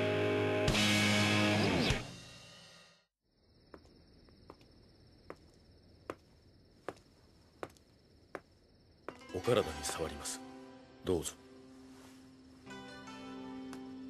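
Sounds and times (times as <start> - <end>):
rock guitar music: 0.0 - 2.1
crickets chirring: 3.2 - 14.0.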